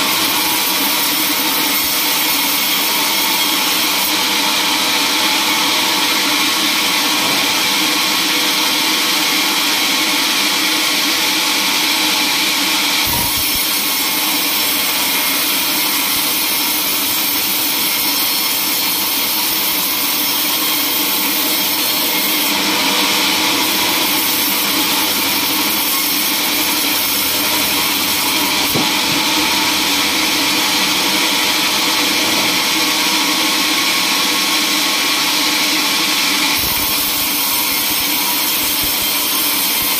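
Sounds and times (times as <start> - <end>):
band saw cutting log: 0.0 - 39.9
brief knock: 7.2 - 7.7.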